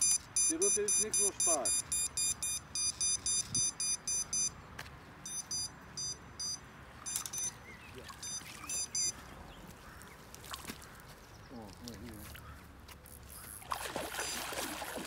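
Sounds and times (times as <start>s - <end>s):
rapid high-pitched electronic beeps: 0.0s - 4.5s, 5.3s - 7.5s, 8.2s - 9.1s.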